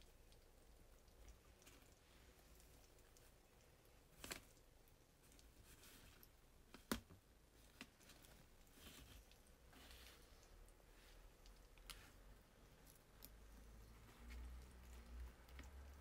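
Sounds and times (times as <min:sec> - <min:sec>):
hedgehogs eating smacking: 0:00.0 - 0:06.7.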